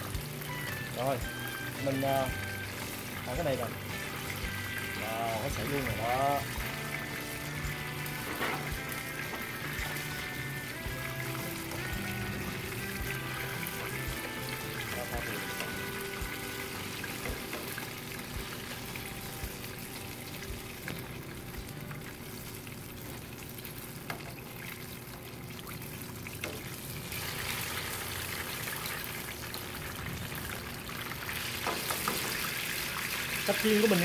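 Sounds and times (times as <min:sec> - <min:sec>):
background music: 0:00.0 - 0:22.9
food deep-frying in oil: 0:00.0 - 0:34.0.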